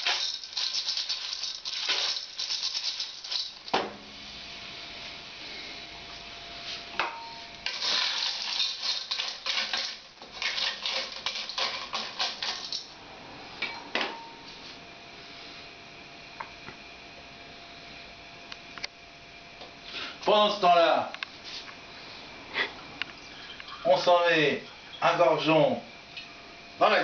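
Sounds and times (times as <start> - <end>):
shells rattling in metal pot: 0.0 - 3.8, 7.6 - 13.0.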